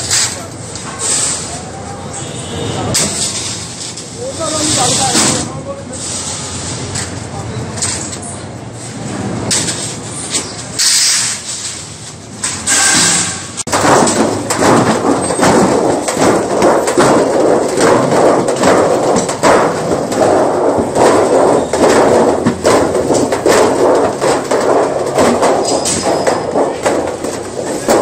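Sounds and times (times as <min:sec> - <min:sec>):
hammering on sheet steel: 0:12.5 - 0:28.0.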